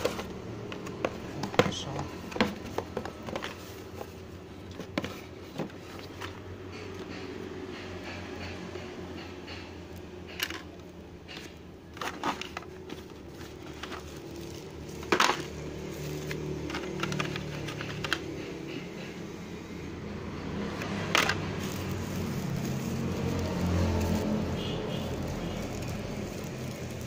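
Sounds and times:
plastic clicks and knocks: 0.0s - 4.0s, 14.9s - 19.1s.

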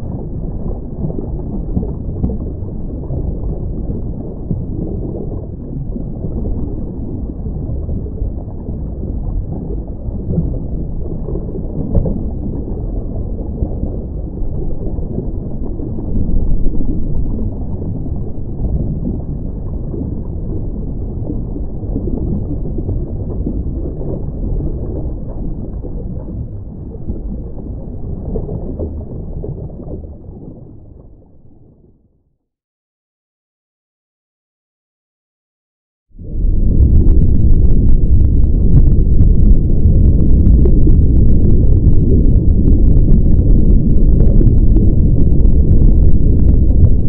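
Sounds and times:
low rumbling noise: 0.0s - 32.1s, 36.1s - 47.0s.

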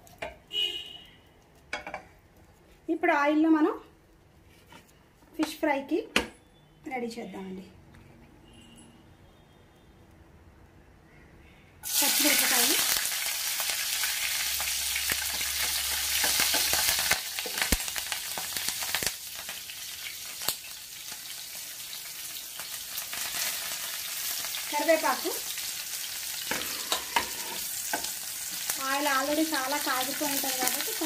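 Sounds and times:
food sizzling in hot oil: 11.8s - 31.0s.

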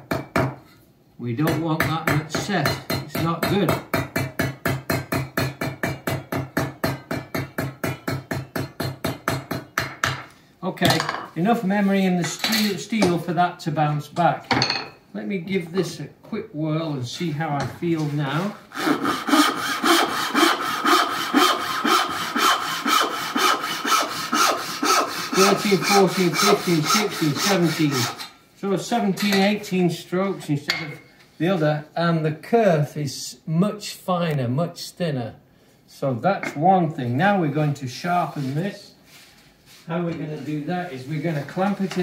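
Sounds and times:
hand saw rasping through wood: 18.3s - 28.4s.

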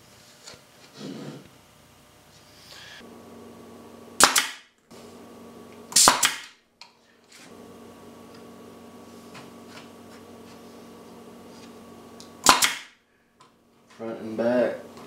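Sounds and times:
nail gun firing into wood: 4.2s - 4.7s, 6.0s - 6.6s, 12.4s - 13.0s.

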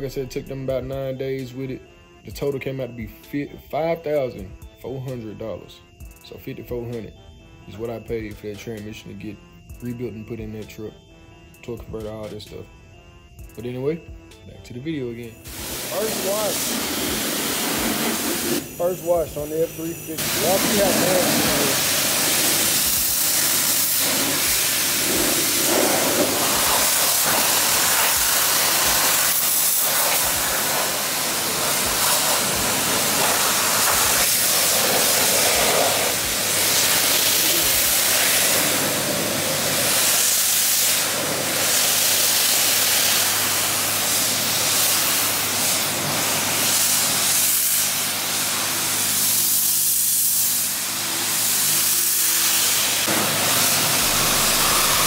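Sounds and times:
pressure wand spraying water: 15.4s - 55.0s.

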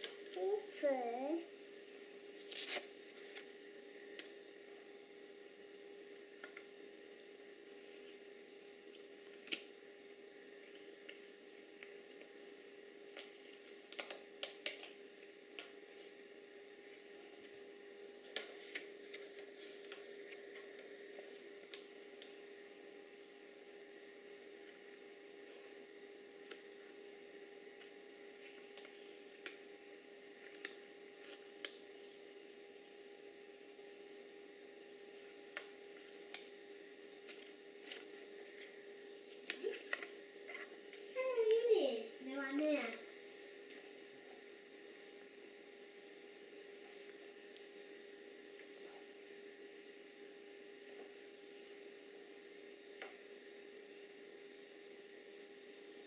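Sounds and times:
faint steady hum: 0.0s - 56.0s
paper crinkling: 2.3s - 4.2s, 18.2s - 22.4s, 30.4s - 31.8s, 37.2s - 41.6s.

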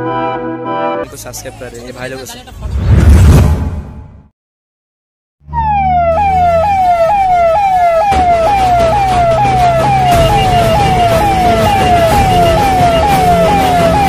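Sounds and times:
siren wailing: 5.4s - 14.0s
regular beat: 6.7s - 14.0s.

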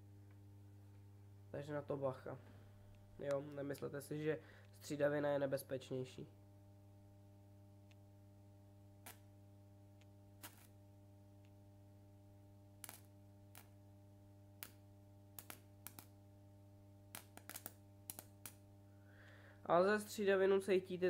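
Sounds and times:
electric arc snapping: 9.0s - 9.4s, 10.0s - 10.8s, 12.8s - 13.8s, 14.6s - 16.2s, 17.1s - 18.7s.

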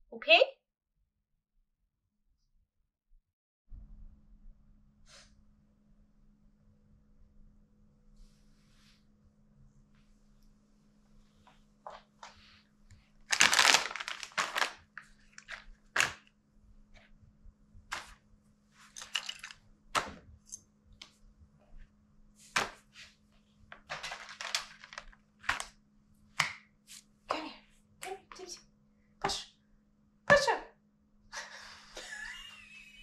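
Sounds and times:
fabric and plastic rustling: 11.9s - 16.3s, 22.7s - 25.8s
objects clicking and knocking: 18.9s - 20.6s, 23.8s - 25.7s.

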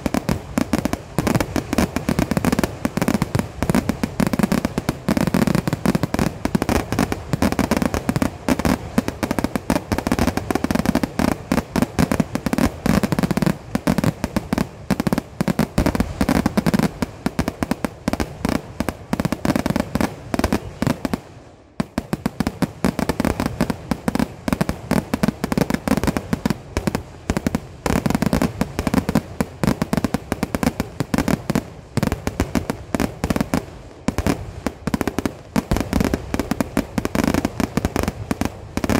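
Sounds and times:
fireworks barrage of bangs: 0.0s - 38.9s.

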